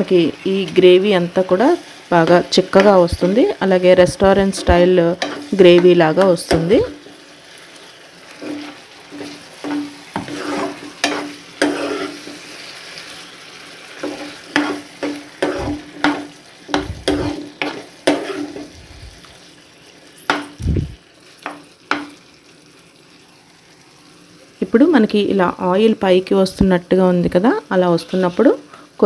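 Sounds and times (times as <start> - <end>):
faint sizzle: 0.0 - 29.0
spoon scraping a pan: 1.8 - 3.5, 4.3 - 7.3, 8.2 - 13.3, 13.9 - 18.8, 20.2 - 20.6.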